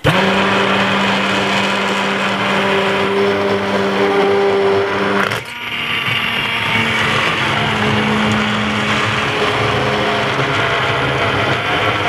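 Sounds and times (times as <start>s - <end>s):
immersion blender running: 0.0s - 12.0s
soup churning: 0.0s - 12.0s.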